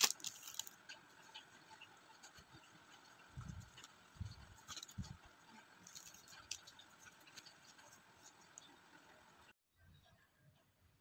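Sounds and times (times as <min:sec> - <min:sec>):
card ticks and rustles: 0:00.0 - 0:08.8.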